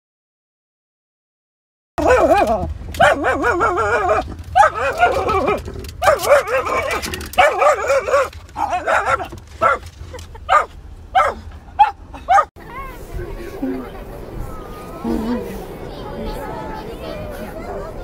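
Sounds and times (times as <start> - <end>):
dog howling and whining: 2.0 - 9.8
car rumble: 2.0 - 18.0.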